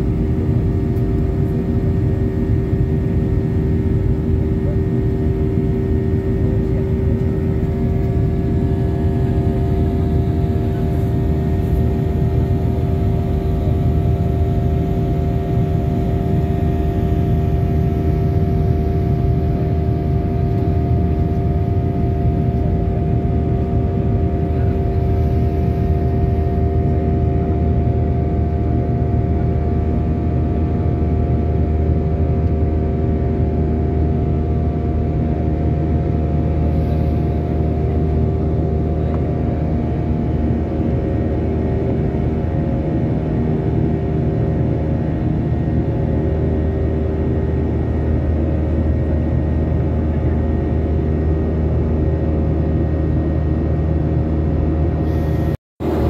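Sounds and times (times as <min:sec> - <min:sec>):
aircraft engine rumble: 0:00.0 - 0:56.0
steady hum tones: 0:00.0 - 0:56.0.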